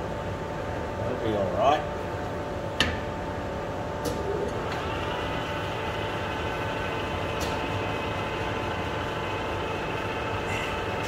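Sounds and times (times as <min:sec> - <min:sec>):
lathe motor humming: 0:04.6 - 0:11.0.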